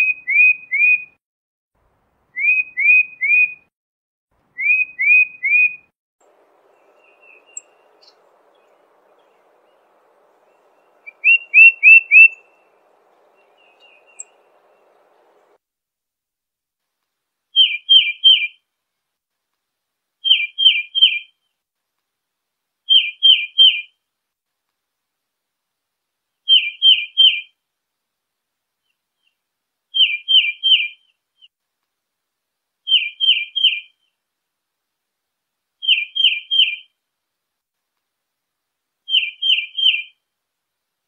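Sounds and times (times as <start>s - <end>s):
bird whistling falling notes: 10.5s - 12.4s.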